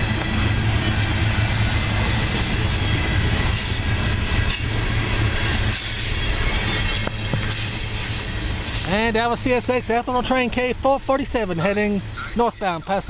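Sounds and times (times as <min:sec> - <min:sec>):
train wheels rumbling on rail: 0:00.0 - 0:13.0
high wheel hisses: 0:00.5 - 0:09.9.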